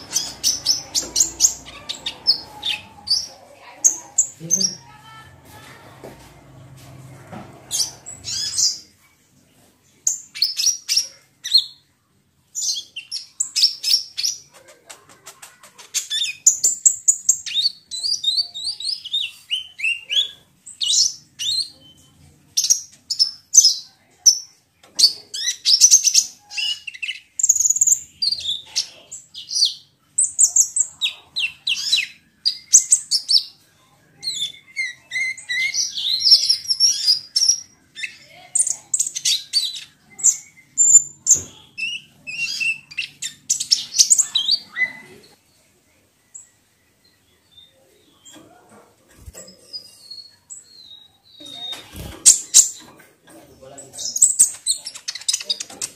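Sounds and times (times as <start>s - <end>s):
bird chirping and trilling: 0.0s - 5.1s, 7.7s - 8.9s, 34.2s - 45.3s, 54.0s - 55.9s.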